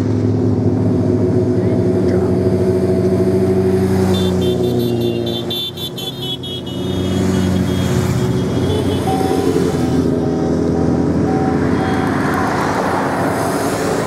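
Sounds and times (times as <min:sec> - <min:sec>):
motorcycles riding past: 0:01.6 - 0:14.0
high horn toots: 0:04.1 - 0:10.1, 0:11.2 - 0:12.6
faint beeps: 0:10.7 - 0:12.8.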